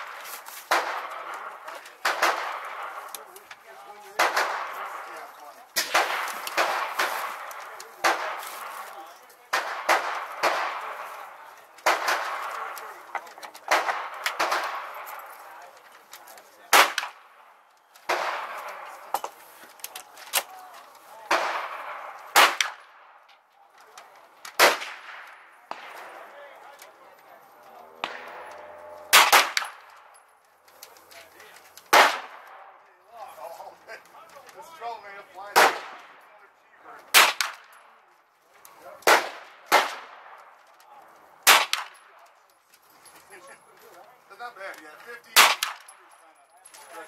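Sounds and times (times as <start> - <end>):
gunshots with echo: 0.0 - 3.1, 4.0 - 8.9, 9.5 - 13.1, 13.7 - 15.4, 16.7 - 19.1, 21.3 - 23.2, 24.6 - 26.5, 27.9 - 30.1, 31.9 - 32.7, 35.5 - 36.2, 37.1 - 37.8, 39.0 - 40.4, 41.4 - 42.1, 45.4 - 45.9.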